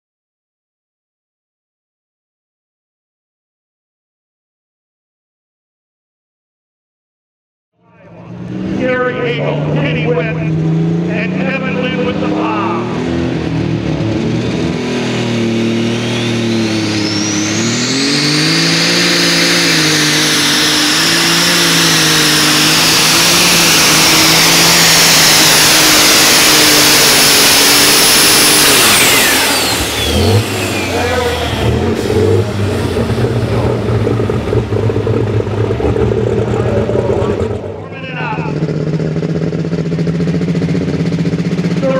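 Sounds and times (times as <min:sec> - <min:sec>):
tractor engine running hard: 0:08.0 - 0:41.9
turbo whistle: 0:15.8 - 0:32.4.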